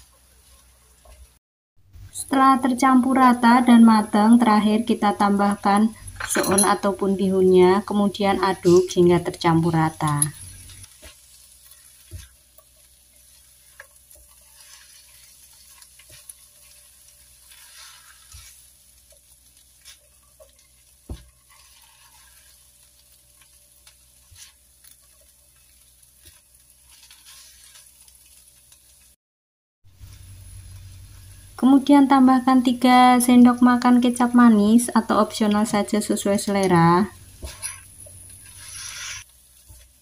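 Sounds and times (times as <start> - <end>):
faint sizzle in a wok: 0.0 - 29.2, 29.9 - 40.0
spatula scraping and tapping a pan: 10.0 - 22.7, 23.4 - 28.1, 36.6 - 40.0.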